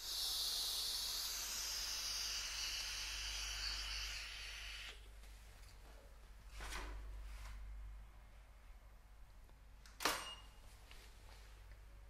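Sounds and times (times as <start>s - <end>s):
aerosol spray hissing: 0.0s - 5.0s.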